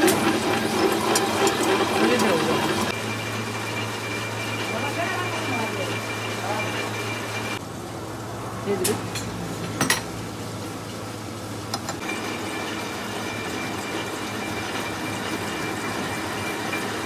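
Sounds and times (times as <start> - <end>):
lathe humming: 0.0 - 7.6.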